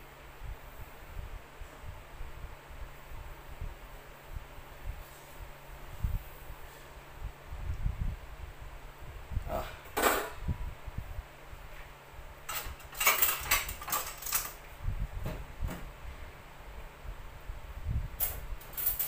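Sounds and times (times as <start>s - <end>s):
clinks and rattles: 12.5s - 14.6s, 18.2s - 19.0s.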